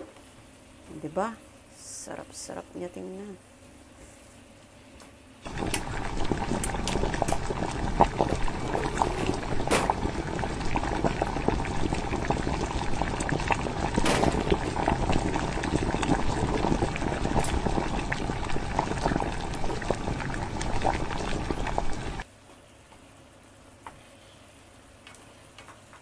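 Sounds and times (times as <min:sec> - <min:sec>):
sauce bubbling in frying pan: 0:05.4 - 0:22.2.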